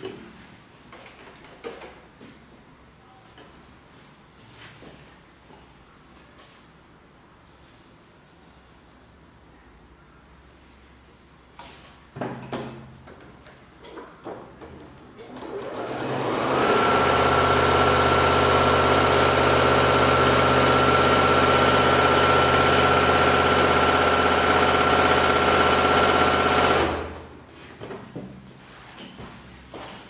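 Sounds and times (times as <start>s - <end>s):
sewing machine stitching: 15.2s - 27.2s.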